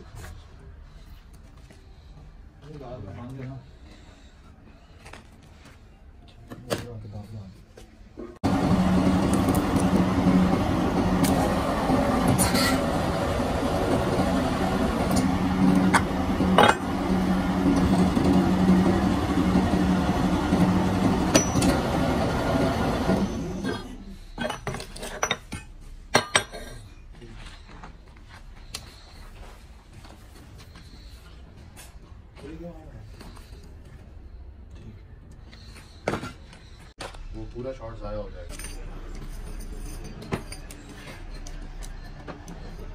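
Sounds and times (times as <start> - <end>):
metal-forming press humming: 8.4 - 25.6
sharp metallic clanks: 21.0 - 22.0.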